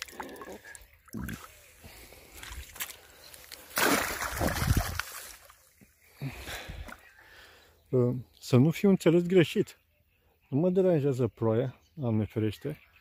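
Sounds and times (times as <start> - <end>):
water splashing and sloshing: 0.0 - 5.9.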